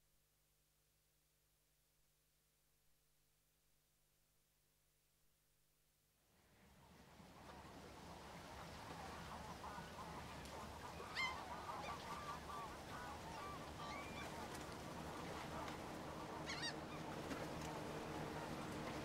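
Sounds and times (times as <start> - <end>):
flock of birds calling: 10.8 - 17.1.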